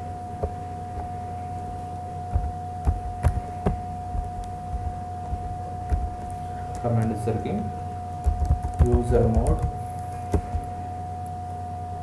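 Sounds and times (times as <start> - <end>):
electrical hum: 0.0 - 12.0
keyboard keystroke clicks: 8.2 - 10.7.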